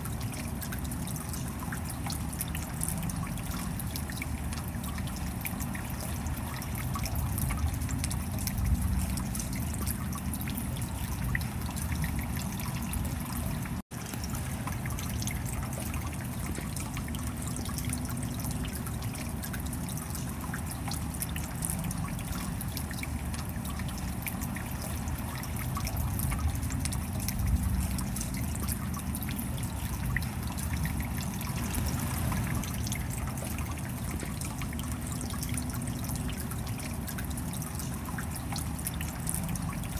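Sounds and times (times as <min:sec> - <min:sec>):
stream water rushing over rocks: 0:29.6 - 0:35.0.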